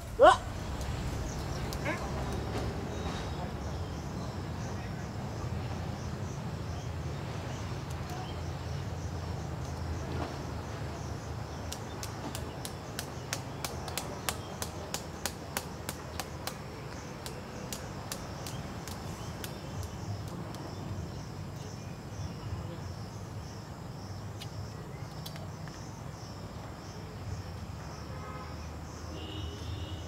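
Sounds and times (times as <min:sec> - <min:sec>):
low background rumble: 0:00.0 - 0:04.4.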